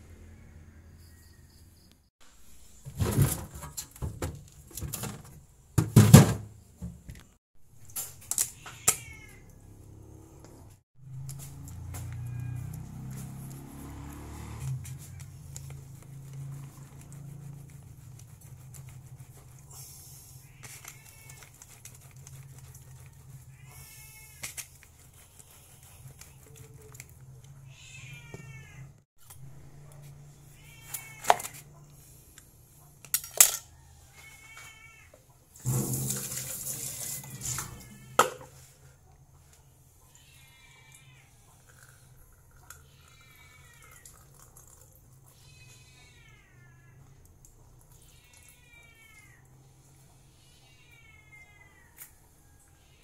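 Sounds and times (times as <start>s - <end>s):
cat meowing: 8.5s - 9.6s, 27.6s - 28.9s, 37.4s - 38.3s, 45.4s - 47.1s, 48.0s - 49.5s, 50.4s - 52.0s.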